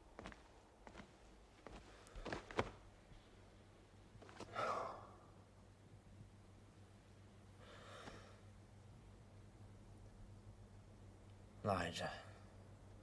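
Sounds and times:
person sighing: 4.5 - 5.2
faint breath: 7.6 - 8.5.

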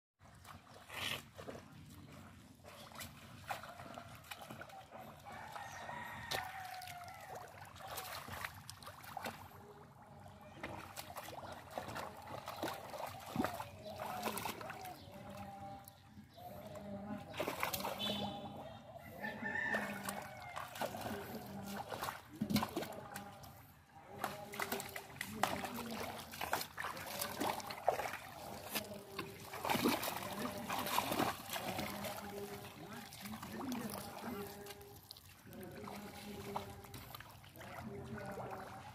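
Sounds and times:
splashing in muddy water: 0.2 - 38.9
faint voices: 9.2 - 38.9
birds calling: 17.8 - 19.6.

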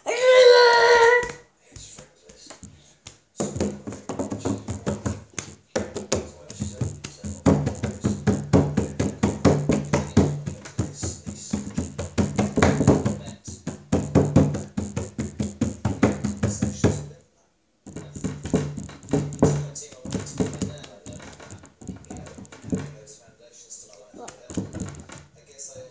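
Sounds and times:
dance music with fast beat: 3.4 - 17.0, 17.9 - 23.0.

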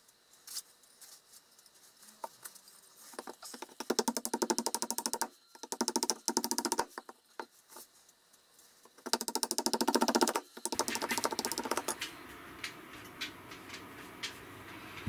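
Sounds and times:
soft scratching with light ticks: 0.0 - 3.2.

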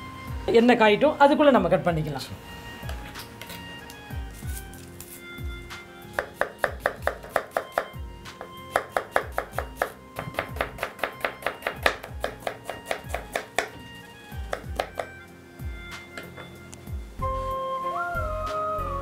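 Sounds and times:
background music with steady beat: 0.0 - 19.0
knife slicing onion on board: 6.1 - 15.2.

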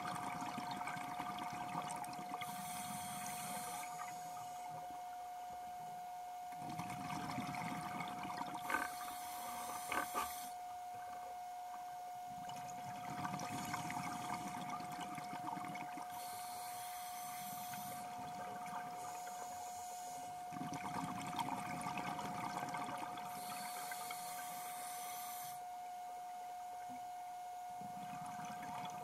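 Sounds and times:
steady high whine: 0.0 - 29.0
diver breathing through regulator: 2.4 - 4.9, 8.6 - 10.6, 16.1 - 18.3, 18.9 - 20.5, 23.3 - 25.7.

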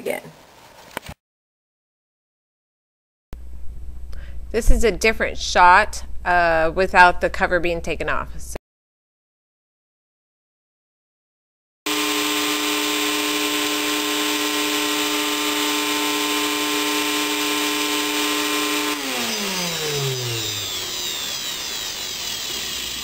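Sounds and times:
vacuum motor whining: 11.9 - 23.0.

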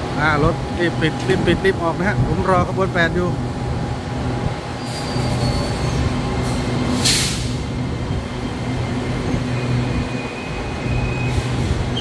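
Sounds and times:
short hiss: 7.0 - 7.6.

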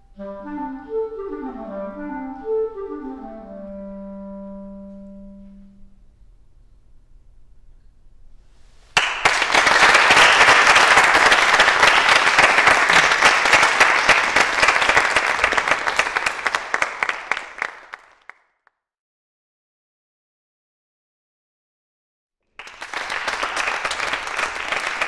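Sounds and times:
audience applauding: 9.0 - 18.4, 22.6 - 25.0.

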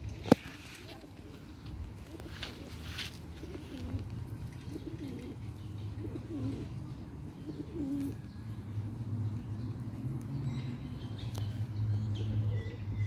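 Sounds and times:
pigeons cooing: 0.2 - 8.3, 12.1 - 12.9.

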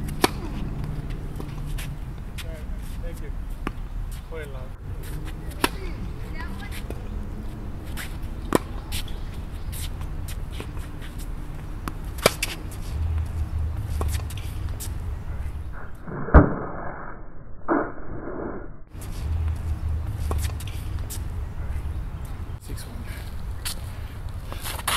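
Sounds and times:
tennis balls struck by rackets: 0.0 - 4.4, 5.0 - 15.7, 18.9 - 22.5.

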